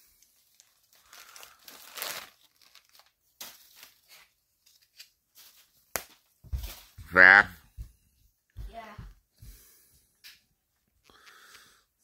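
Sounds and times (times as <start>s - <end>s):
wrapping paper crinkling and tearing: 0.0s - 7.0s.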